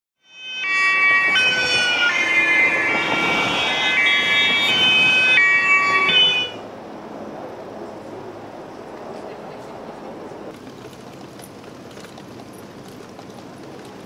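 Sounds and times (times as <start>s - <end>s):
two-tone police siren: 0.2s - 6.6s
low hum of street noise: 0.2s - 14.0s.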